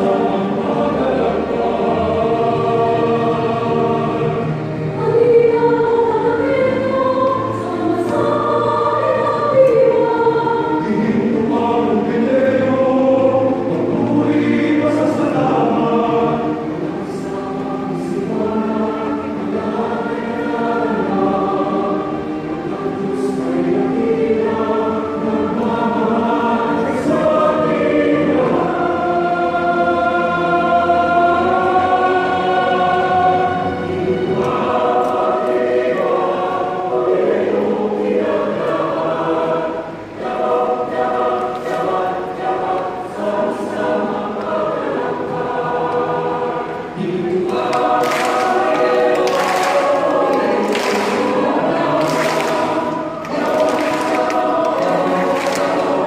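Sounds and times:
choir singing: 0.0 - 56.0.

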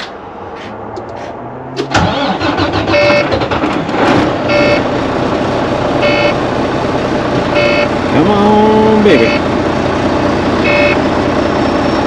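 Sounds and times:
diesel engine cranking on starter: 1.8 - 5.8
dashboard warning chime: 2.9 - 3.3, 4.5 - 4.8, 6.0 - 6.4, 7.5 - 9.5, 10.6 - 11.0.

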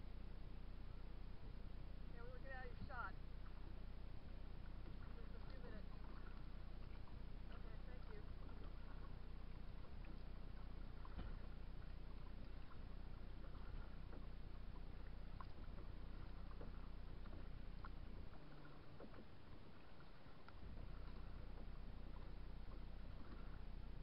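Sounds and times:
steady low rumble: 0.0 - 24.0
water lapping and splashes: 0.2 - 24.0
hull and paddle ticks: 2.3 - 24.0.

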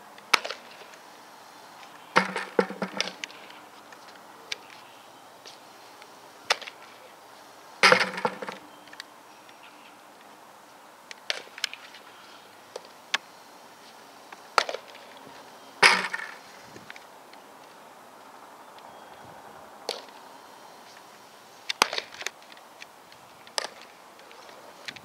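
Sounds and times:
faint knocks: 2.2 - 3.5, 7.8 - 8.6.

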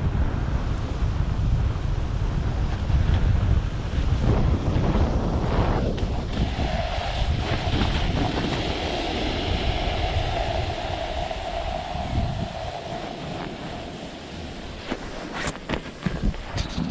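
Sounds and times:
wind buffeting microphone: 0.0 - 16.9
snowboard sliding through snow: 0.1 - 16.9
steady hum: 4.1 - 16.9.

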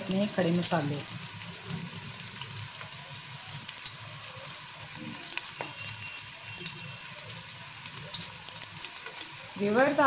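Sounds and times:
onions sizzling in oil: 0.0 - 10.0.

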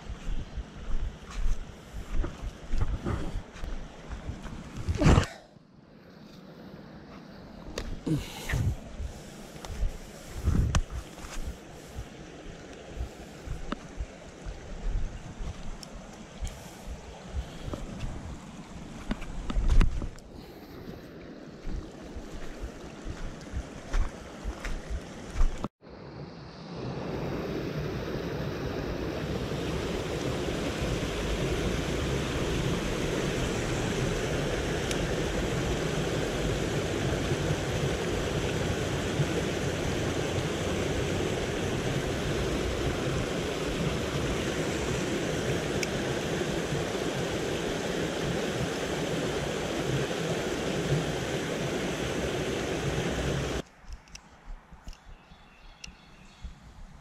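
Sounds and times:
water rushing over rocks: 20.8 - 25.7, 26.8 - 53.6.

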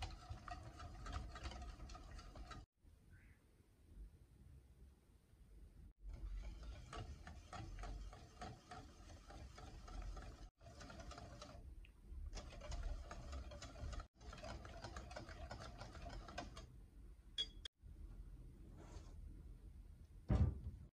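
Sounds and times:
whisk tapping glass bowl: 0.0 - 2.6, 6.3 - 10.4.

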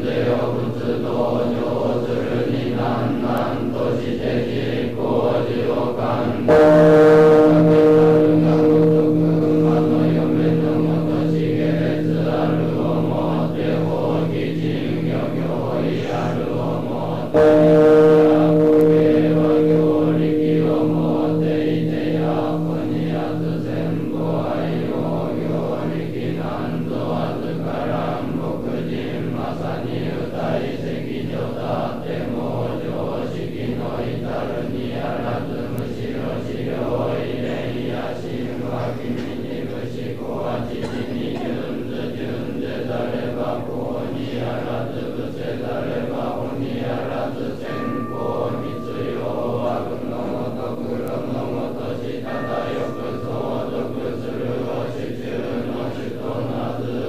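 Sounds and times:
monks chanting in unison: 0.0 - 57.0
high steady tone: 2.3 - 28.2, 46.9 - 57.0.

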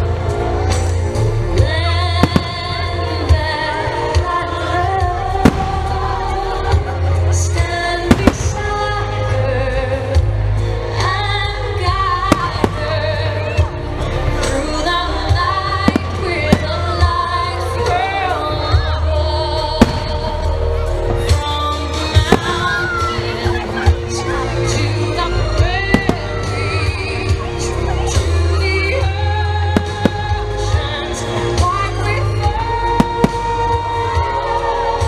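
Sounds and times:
loud music with singing: 0.0 - 35.0
fireworks bursting: 2.1 - 4.2, 5.3 - 9.3, 12.1 - 13.7, 15.2 - 18.2, 19.7 - 23.9, 25.8 - 27.4, 29.7 - 34.2.

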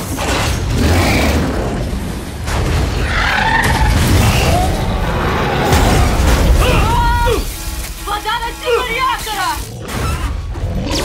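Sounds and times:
crashing: 2.2 - 8.6.

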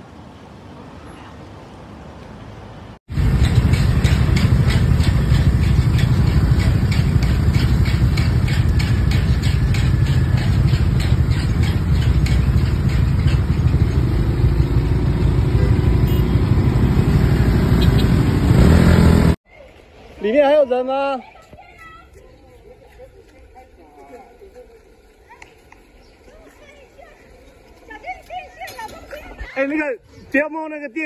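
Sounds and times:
loud low rumble: 3.1 - 19.4
scooter and car engines idling: 3.1 - 19.4, 22.7 - 29.4.

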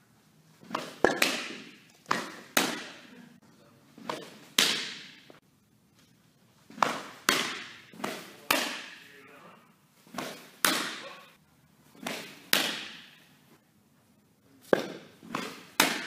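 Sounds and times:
softballs smacking into a mitt: 0.6 - 3.1, 4.0 - 5.4, 6.7 - 9.1, 10.1 - 11.2, 12.0 - 13.3, 14.6 - 16.0.

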